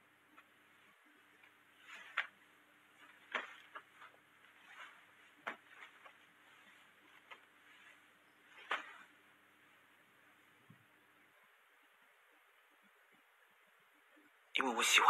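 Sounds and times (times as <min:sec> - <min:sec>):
clothing rustling: 0:00.0 - 0:11.6.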